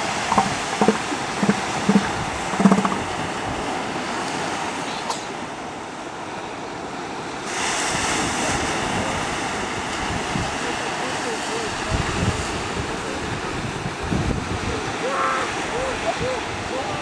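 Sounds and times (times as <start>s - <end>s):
wind noise on microphone: 0.0s - 4.1s, 7.6s - 10.6s, 11.7s - 17.0s
ocean surf: 0.0s - 17.0s.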